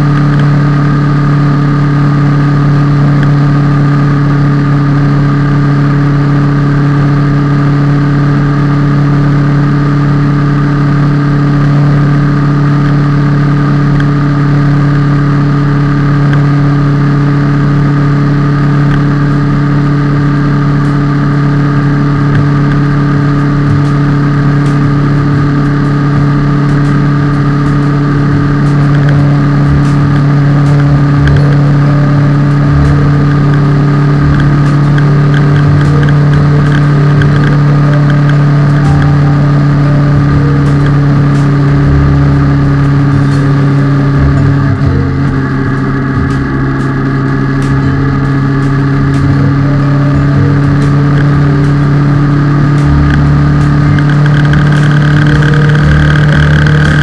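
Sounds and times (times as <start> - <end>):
motorcycle engine droning: 0.0 - 57.0.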